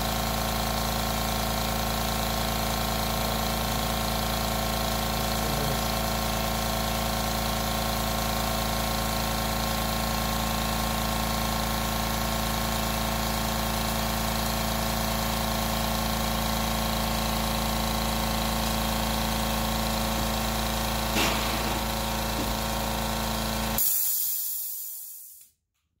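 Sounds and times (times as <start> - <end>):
air compressor running: 0.0 - 25.4
air hissing: 20.9 - 25.5.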